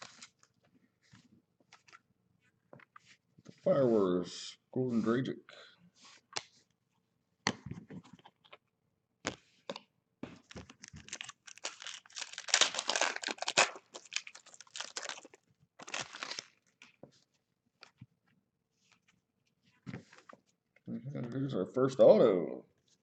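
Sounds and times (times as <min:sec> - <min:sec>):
foil wrapper tearing and crinkling: 0:10.8 - 0:16.8.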